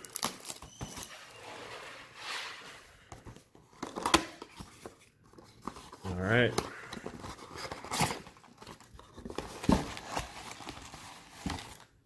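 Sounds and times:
cardboard scrape: 0:00.8 - 0:03.3, 0:05.4 - 0:08.3
cardboard and foil rustling: 0:03.9 - 0:12.0.

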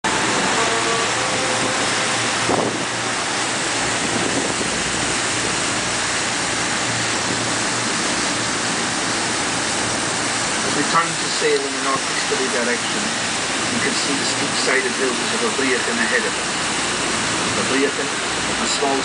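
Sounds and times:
water churning past boat: 0:00.0 - 0:19.0
wind on microphone: 0:01.2 - 0:06.0.

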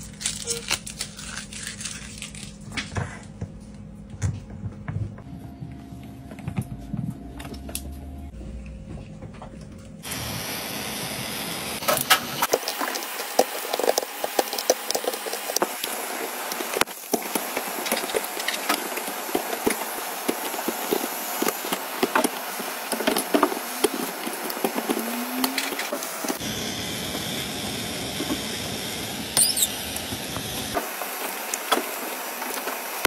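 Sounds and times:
heat gun blowing: 0:10.0 - 0:31.5
glass crackling and clicking: 0:29.4 - 0:29.7
blade scraping glass: 0:29.4 - 0:29.8.

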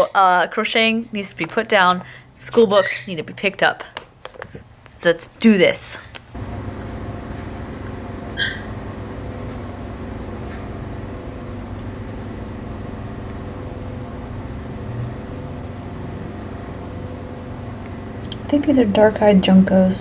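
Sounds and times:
low machine hum: 0:04.9 - 0:20.0.

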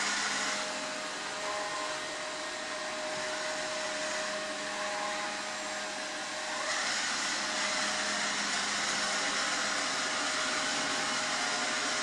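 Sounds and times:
robot vacuum fan whirring: 0:00.0 - 0:12.0.

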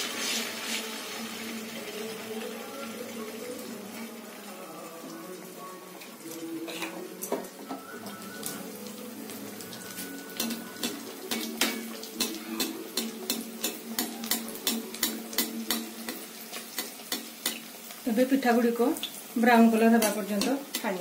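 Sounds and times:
batter sizzling in hot oil: 0:00.0 - 0:21.0
metal ladle tapping pan: 0:10.4 - 0:17.7.

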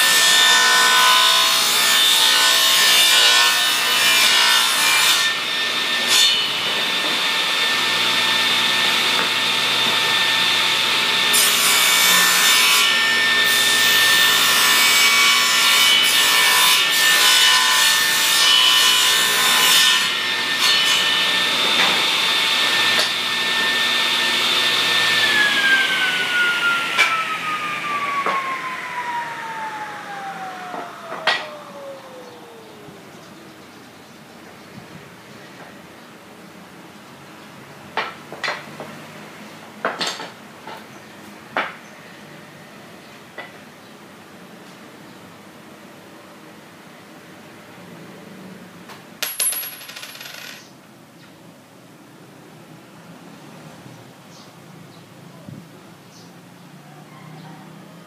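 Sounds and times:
saw cutting wood: 0:00.0 - 0:31.8
table saw whining: 0:00.0 - 0:33.0.

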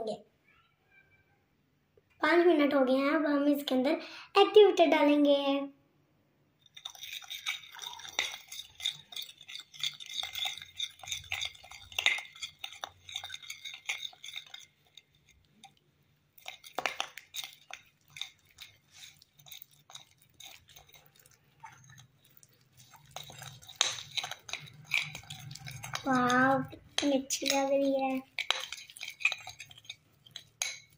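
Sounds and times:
metal spoon scraping a plate: 0:06.7 - 0:15.7, 0:16.4 - 0:30.9
sticky slime being stirred: 0:06.7 - 0:30.9.

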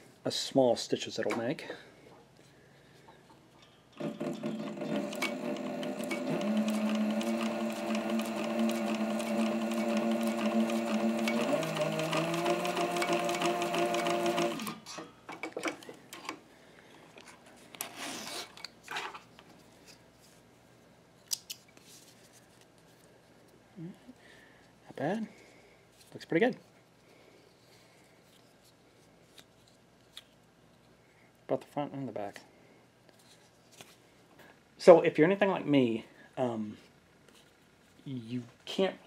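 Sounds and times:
sewing machine motor whine: 0:04.0 - 0:14.9.

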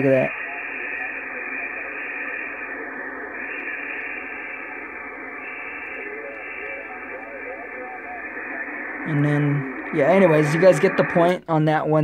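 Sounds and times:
faint garbled radio voices: 0:00.0 - 0:11.5
radio static hiss: 0:00.0 - 0:12.0.

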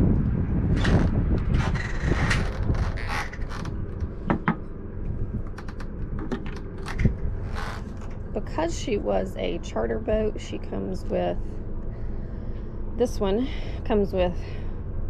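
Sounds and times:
wind buffeting microphone: 0:00.0 - 0:15.0
sharp clicks and knocks: 0:00.2 - 0:04.7, 0:05.4 - 0:07.2.

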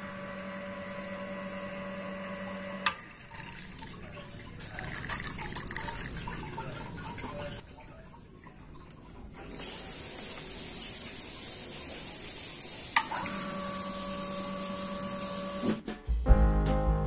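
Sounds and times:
water pump humming: 0:00.0 - 0:07.8, 0:09.4 - 0:15.8
water hissing through tap: 0:09.6 - 0:15.7.

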